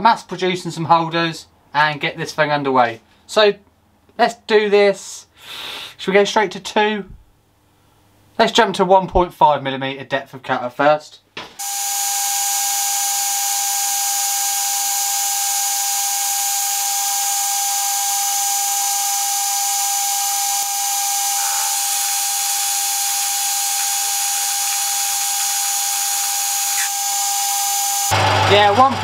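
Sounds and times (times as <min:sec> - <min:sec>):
metal lathe cutting steel: 0:11.6 - 0:29.0.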